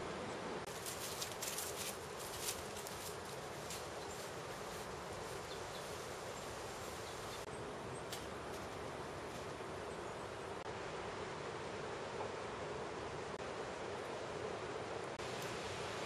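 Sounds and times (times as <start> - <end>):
outdoor hiss-like wash: 0.0 - 16.0
rustling crackles: 0.7 - 7.5.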